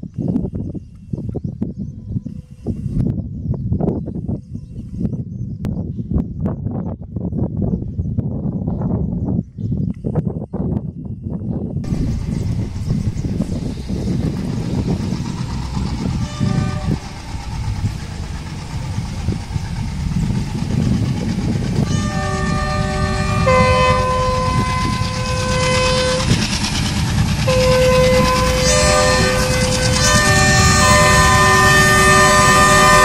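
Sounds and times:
train rumbling on track: 11.7s - 33.0s
train horn blasts: 13.4s - 20.8s, 21.6s - 33.0s.

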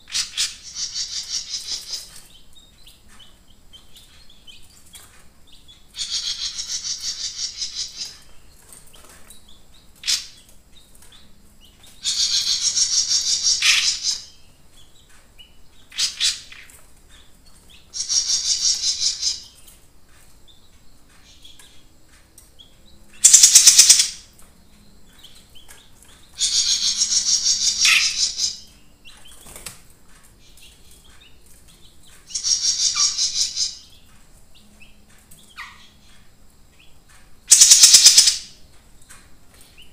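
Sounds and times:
songbird trilling: 0.0s - 2.4s, 5.8s - 8.4s, 11.8s - 14.5s, 15.4s - 19.7s, 23.1s - 24.3s, 25.2s - 29.3s, 32.3s - 36.2s, 37.5s - 38.6s.

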